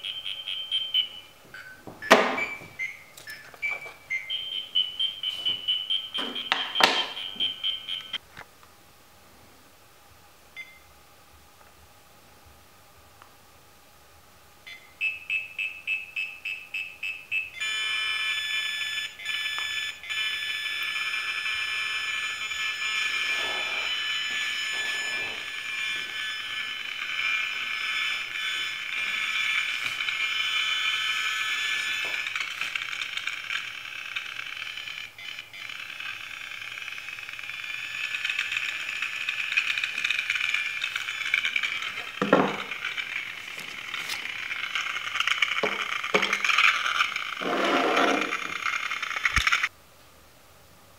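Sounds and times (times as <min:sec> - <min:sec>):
rapid high electronic beeps: 0:02.2 - 0:08.2
steady high-pitched tone: 0:17.5 - 0:48.8.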